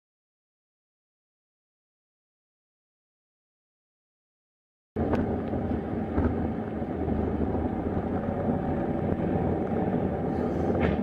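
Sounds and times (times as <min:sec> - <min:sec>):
car road and engine rumble: 0:05.0 - 0:11.0.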